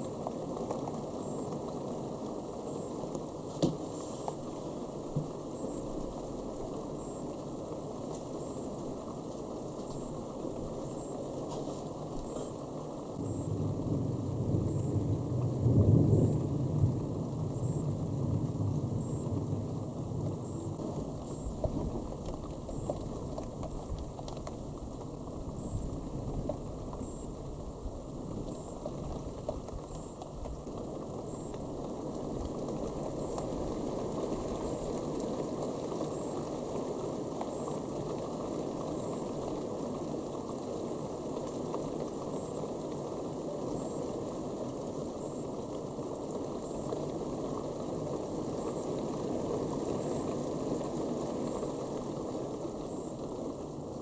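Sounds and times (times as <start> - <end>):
steady rain falling: 0.0 - 54.0
low thunder rumble: 13.2 - 30.1.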